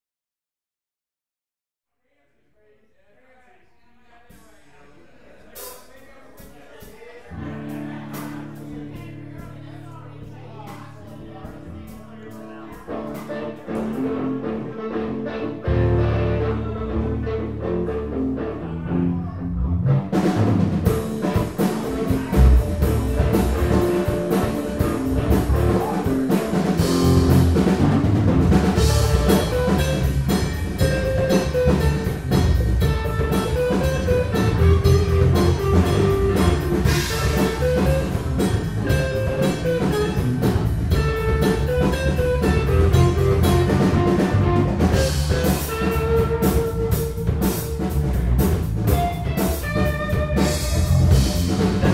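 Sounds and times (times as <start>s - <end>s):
drum kit: 5.6s - 14.5s, 19.8s - 51.9s
electric bass: 7.3s - 51.9s
electric guitar lead: 7.3s - 51.9s.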